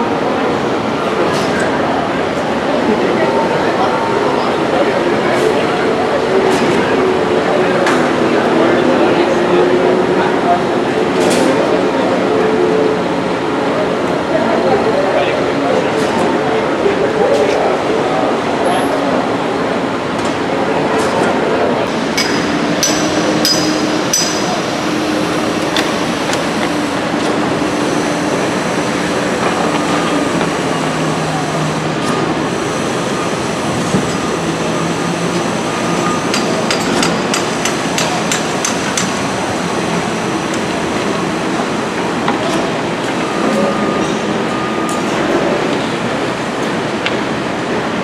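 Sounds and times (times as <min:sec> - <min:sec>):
truck diesel engines humming: 0:00.0 - 0:48.0
sharp metal hammering taps: 0:22.2 - 0:24.4.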